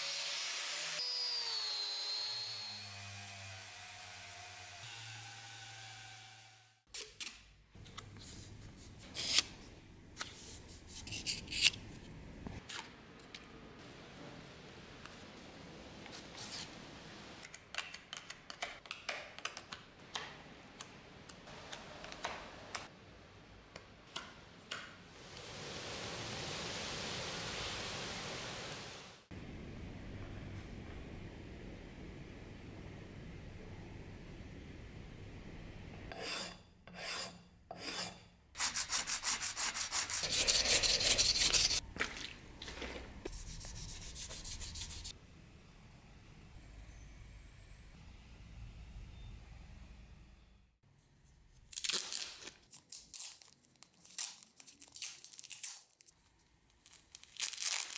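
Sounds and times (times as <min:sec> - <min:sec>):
metal file scraping putty: 0:10.9 - 0:11.8, 0:36.1 - 0:41.8
spatula scraping metal anvil: 0:36.1 - 0:38.3
sandpaper rubbing back and forth: 0:37.0 - 0:41.8, 0:43.3 - 0:45.1.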